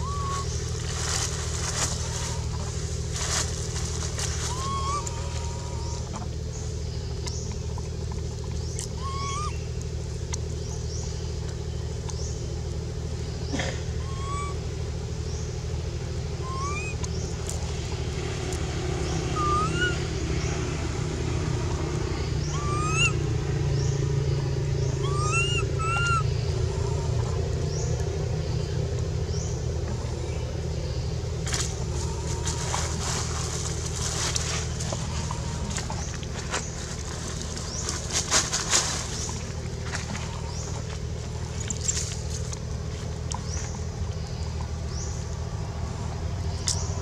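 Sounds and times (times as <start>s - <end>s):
rising squeaky call: 0.0s - 0.6s, 4.3s - 6.2s, 8.8s - 9.6s, 14.0s - 14.6s, 16.4s - 17.1s, 19.2s - 20.5s, 22.4s - 23.2s, 24.8s - 27.5s
dry leaves rustling: 0.0s - 6.8s, 14.2s - 47.0s
low motor hum: 0.0s - 47.0s.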